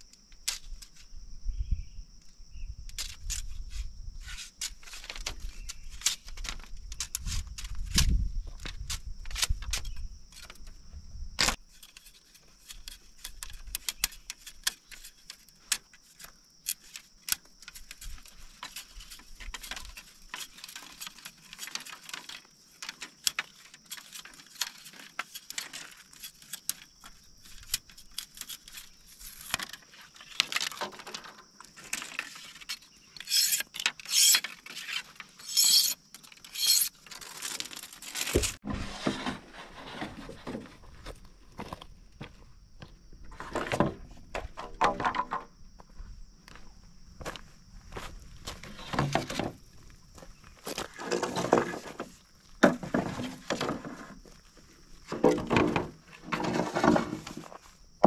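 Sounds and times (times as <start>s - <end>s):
machete scraping bamboo: 3.0s - 8.2s, 11.4s - 40.6s, 55.1s - 57.6s
bamboo poles knocking on stones: 43.8s - 45.5s, 51.0s - 54.0s.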